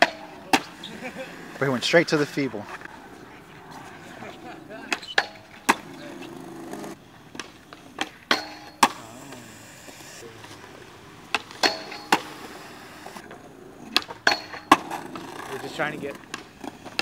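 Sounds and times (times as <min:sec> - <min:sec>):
skateboard clacks and knocks: 0:00.0 - 0:00.8, 0:13.2 - 0:17.0
skateboard wheels rolling on concrete: 0:00.0 - 0:17.0.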